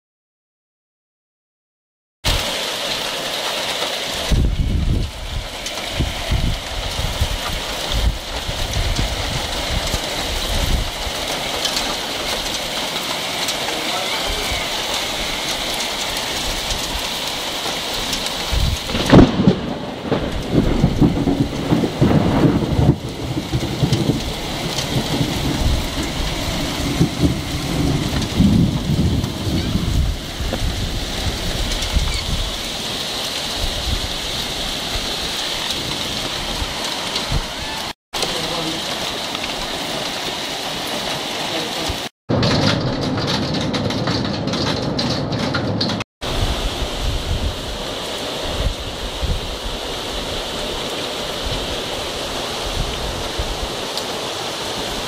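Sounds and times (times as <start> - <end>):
heavy rain falling: 2.3 - 55.0
sharp thunderclap: 4.2 - 13.0, 14.7 - 32.6, 41.9 - 47.8
low rumbling thunder: 4.2 - 32.9, 42.3 - 50.8.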